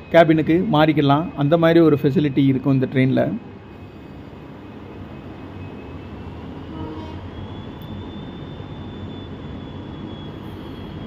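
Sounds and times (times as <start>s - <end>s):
diesel locomotive engine idling: 0.0s - 11.0s
thin high whine: 0.0s - 11.0s.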